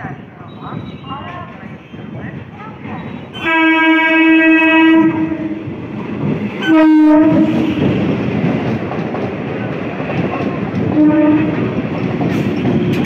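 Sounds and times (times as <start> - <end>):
train rumbling on rails: 0.0 - 13.0
train horn: 3.4 - 5.6, 6.6 - 8.0, 11.0 - 11.7.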